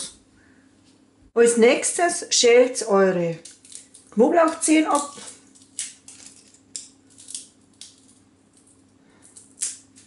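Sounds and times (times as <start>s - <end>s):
garlic skin scraping and crackling: 3.4s - 10.0s.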